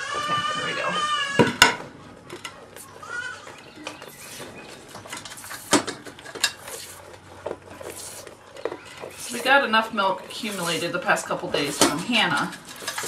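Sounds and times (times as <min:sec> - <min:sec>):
goat bleating: 0:00.0 - 0:01.5, 0:03.0 - 0:03.6.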